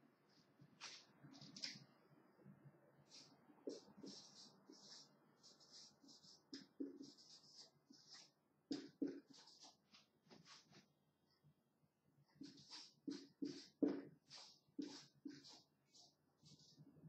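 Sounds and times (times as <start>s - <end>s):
pen scratching strokes: 3.1s - 10.8s, 12.3s - 16.9s.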